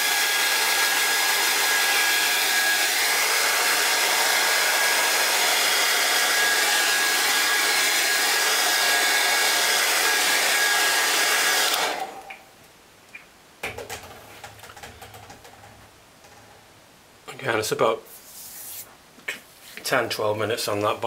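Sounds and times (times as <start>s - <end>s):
hair dryer blowing with whine: 0.0s - 12.3s
rustling: 18.0s - 20.0s.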